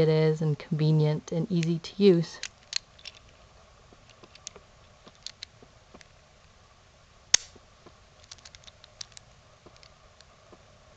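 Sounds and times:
padlock clicks and rattles: 0:02.4 - 0:03.4, 0:04.0 - 0:05.5, 0:08.2 - 0:10.0
sharp metallic click: 0:07.4 - 0:07.6.

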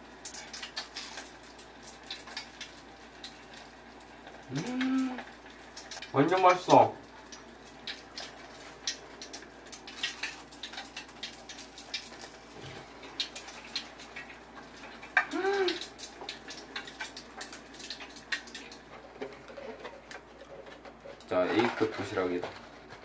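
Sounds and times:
hot oil crackling and popping: 0:00.0 - 0:23.0
person humming: 0:04.5 - 0:05.3, 0:15.2 - 0:15.8.

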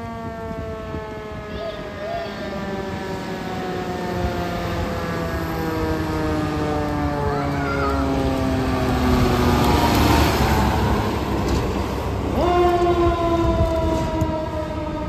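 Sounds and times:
fire truck siren: 0:00.0 - 0:15.0
truck engine passing: 0:03.2 - 0:13.4.

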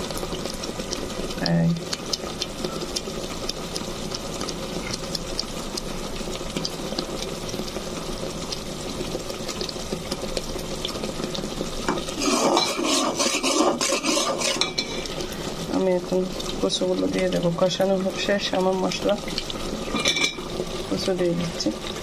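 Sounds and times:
curry bubbling in a pot: 0:00.0 - 0:22.0
metal spoon scraping pot: 0:12.0 - 0:15.1.

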